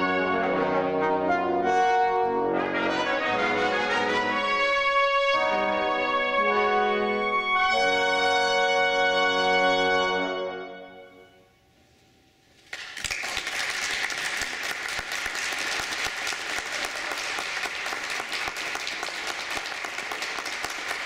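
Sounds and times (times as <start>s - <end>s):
brass quintet chord: 0.0s - 11.6s
audience applause: 12.7s - 21.0s.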